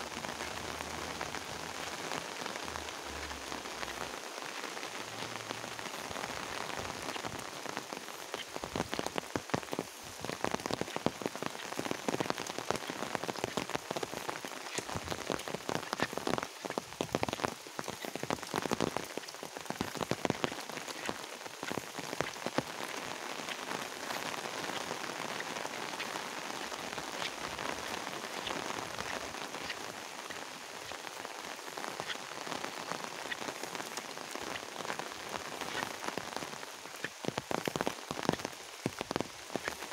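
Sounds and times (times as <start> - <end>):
raindrops hitting an umbrella: 0.0 - 39.9
steady rain: 0.0 - 39.9.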